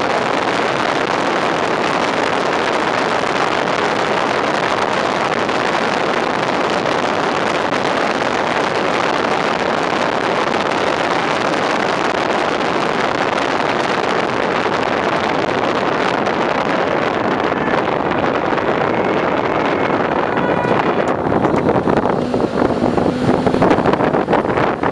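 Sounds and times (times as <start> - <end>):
truck tyres on road: 0.0 - 24.9
wind rushing on microphone: 0.0 - 24.9.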